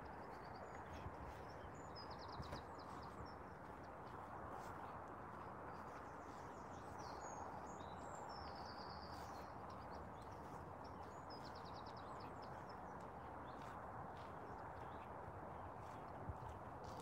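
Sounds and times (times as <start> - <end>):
small birds chirping: 5.7 - 17.0.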